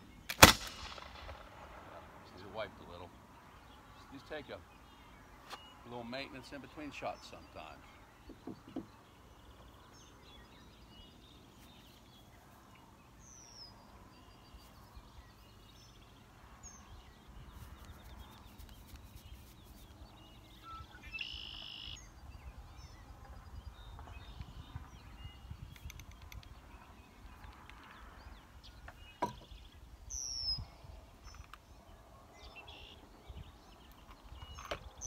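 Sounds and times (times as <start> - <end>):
birds calling: 1.9 - 35.0
low wind rumble: 22.0 - 35.0.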